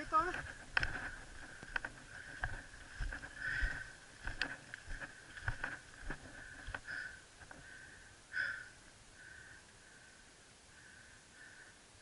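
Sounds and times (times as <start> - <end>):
mountain bike on dirt trail: 0.0 - 8.6.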